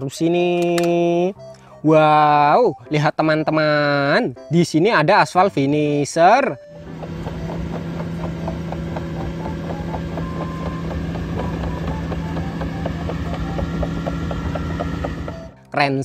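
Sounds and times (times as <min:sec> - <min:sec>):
diesel engine drone: 0:06.6 - 0:15.6
crawler tracks clicking: 0:06.8 - 0:15.6.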